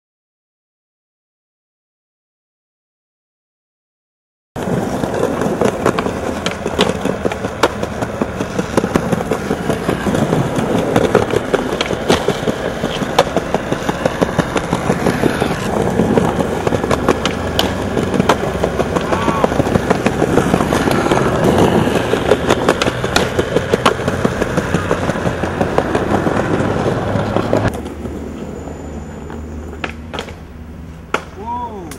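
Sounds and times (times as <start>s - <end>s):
skateboard clacks: 4.6s - 28.0s, 29.2s - 30.4s
skateboard wheels rumbling on concrete: 4.6s - 31.9s.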